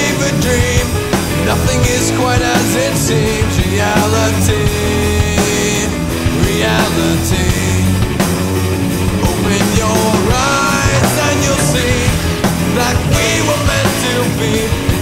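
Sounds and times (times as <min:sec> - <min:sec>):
rock song with singing: 0:00.0 - 0:15.0.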